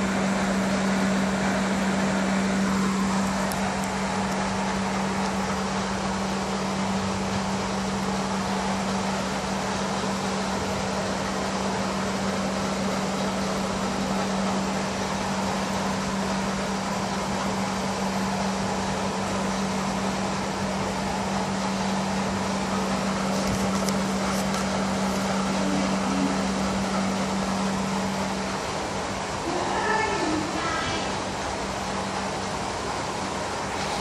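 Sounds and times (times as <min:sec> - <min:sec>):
air pump humming: 0:00.0 - 0:34.0.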